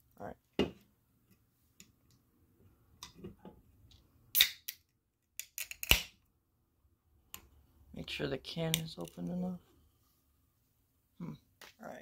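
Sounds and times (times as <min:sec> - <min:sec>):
can ring-pull popping open: 0:05.4 - 0:06.1.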